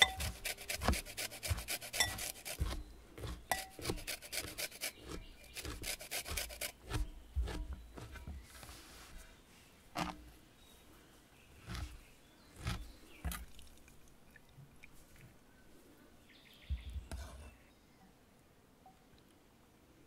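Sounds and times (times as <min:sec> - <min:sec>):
utensils knocking on clay pot: 0:00.0 - 0:02.8, 0:03.4 - 0:04.6
faint outdoor background: 0:00.0 - 0:20.0.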